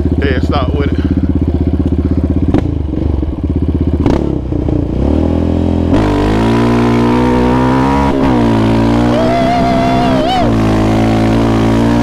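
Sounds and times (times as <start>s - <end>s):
atv engine revving: 0.0s - 12.0s.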